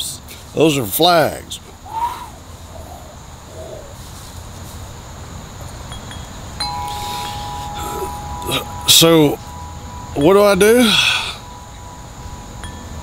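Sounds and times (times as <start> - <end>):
metal tube wind chime: 5.9 - 13.0.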